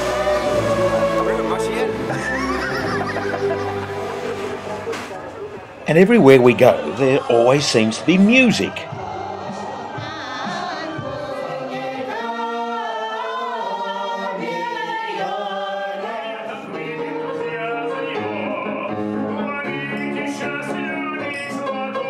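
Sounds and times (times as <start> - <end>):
choir singing with long held notes: 0.0 - 22.0.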